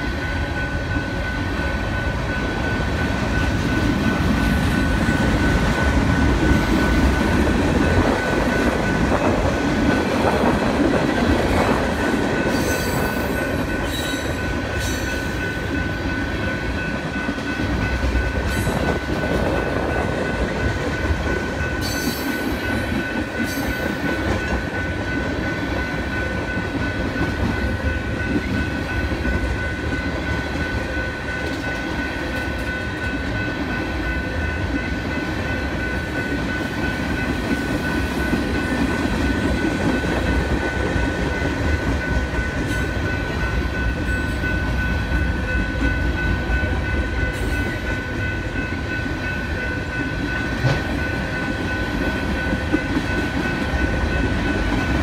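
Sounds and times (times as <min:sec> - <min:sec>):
steel train wheels rumbling on rails: 0:00.0 - 0:55.0
train wheels squealing: 0:12.4 - 0:15.7, 0:21.8 - 0:24.5.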